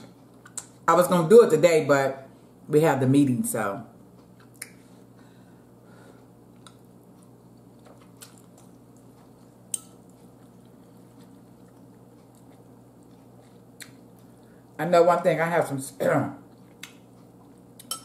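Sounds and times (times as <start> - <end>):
steady low hum: 0.0 - 18.0
person chewing noodles: 6.2 - 14.8, 16.4 - 18.0.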